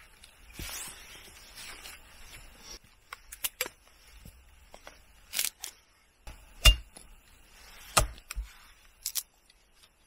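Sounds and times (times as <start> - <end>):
rustling and scraping handling: 0.0 - 5.9.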